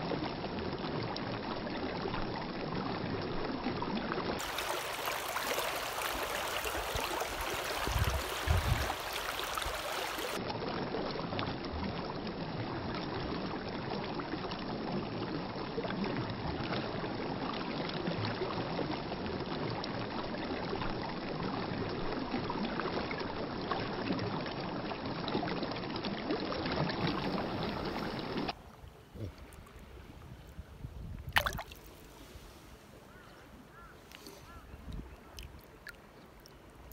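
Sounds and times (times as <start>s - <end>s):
river water rushing over rocks: 4.4s - 10.4s.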